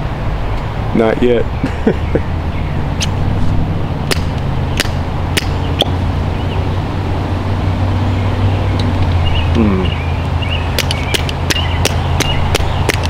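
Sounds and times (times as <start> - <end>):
fire piston clicks and pops: 4.1 - 5.9, 10.8 - 13.0.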